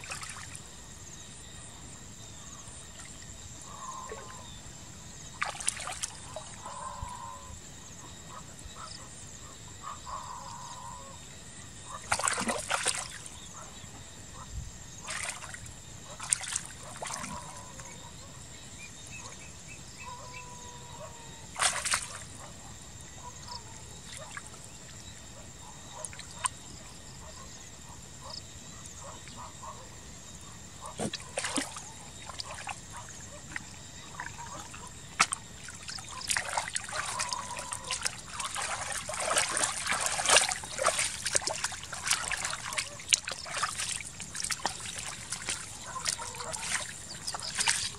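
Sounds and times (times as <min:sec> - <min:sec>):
hands splashing in muddy water: 0:00.0 - 0:00.6, 0:05.4 - 0:06.4, 0:12.1 - 0:13.2, 0:15.0 - 0:17.6, 0:21.6 - 0:22.3, 0:31.0 - 0:47.9.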